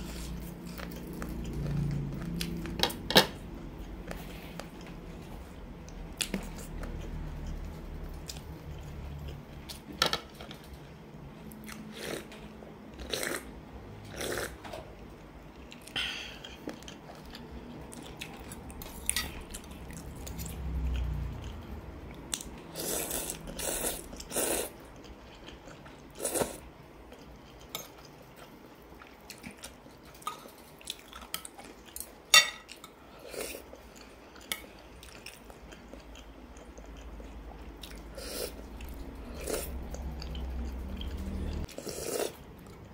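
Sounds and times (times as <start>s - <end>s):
chewing: 14.1s - 42.9s.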